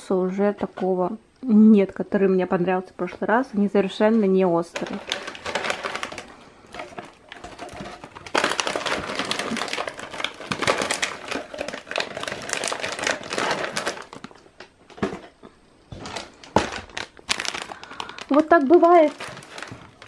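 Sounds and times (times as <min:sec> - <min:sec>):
plastic packaging crinkling: 0:04.6 - 0:20.0.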